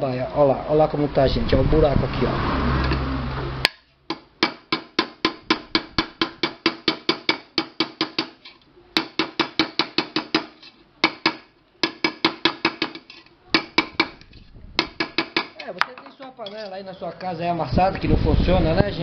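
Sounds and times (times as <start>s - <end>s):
small hammer tapping metal: 3.7s - 16.8s.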